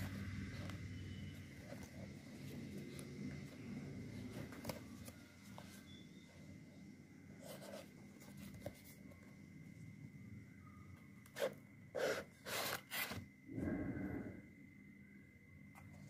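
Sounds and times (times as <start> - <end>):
cardboard box rubbing: 11.4 - 13.2.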